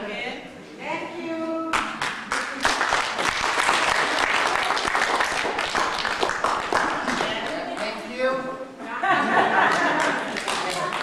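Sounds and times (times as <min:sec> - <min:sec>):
crowd applauding: 0:02.0 - 0:07.9, 0:09.6 - 0:11.0.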